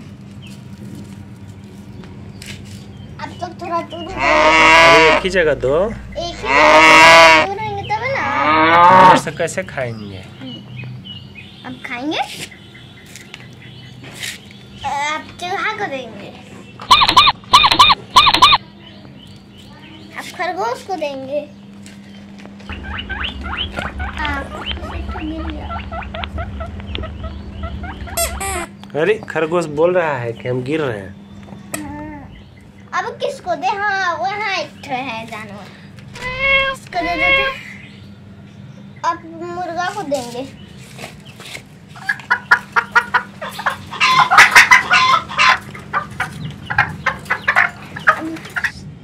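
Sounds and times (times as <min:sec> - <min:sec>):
squeaky electronic chirps: 0:16.8 - 0:18.6, 0:25.8 - 0:28.8, 0:36.2 - 0:37.6
toy chicken clucking: 0:16.8 - 0:18.6, 0:22.8 - 0:28.7, 0:36.2 - 0:37.6, 0:41.9 - 0:48.8
toy motor humming: 0:16.9 - 0:18.6, 0:36.2 - 0:37.6.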